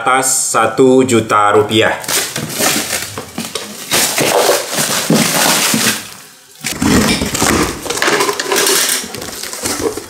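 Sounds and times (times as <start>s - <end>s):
packaging rustling and crinkling: 2.0s - 10.0s.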